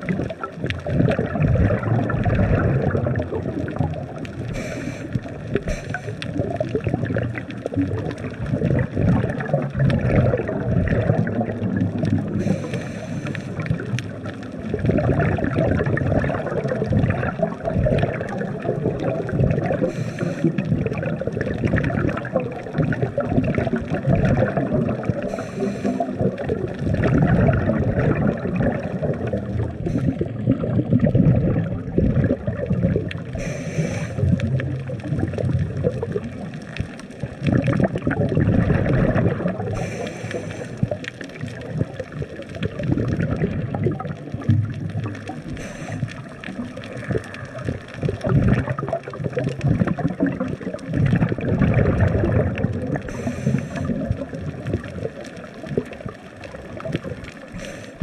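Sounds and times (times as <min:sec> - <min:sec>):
underwater bubbling and rumble: 0:00.0 - 0:58.0
regulator breathing hiss: 0:04.5 - 0:06.3, 0:12.4 - 0:13.6, 0:19.8 - 0:20.6, 0:25.2 - 0:26.2, 0:29.8 - 0:30.2, 0:33.4 - 0:34.3, 0:39.7 - 0:40.9, 0:45.5 - 0:46.2, 0:53.1 - 0:54.0, 0:57.5 - 0:58.0.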